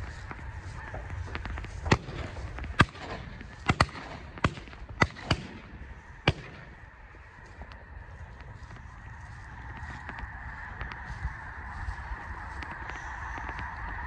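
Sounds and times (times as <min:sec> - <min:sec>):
flock of geese calling: 0:00.0 - 0:14.0
shotgun shots: 0:01.9 - 0:06.8.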